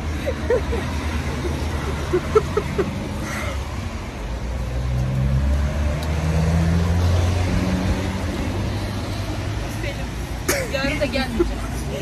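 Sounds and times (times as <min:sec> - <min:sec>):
road noise: 0:00.0 - 0:12.0
vehicle engine passing by: 0:00.9 - 0:09.7.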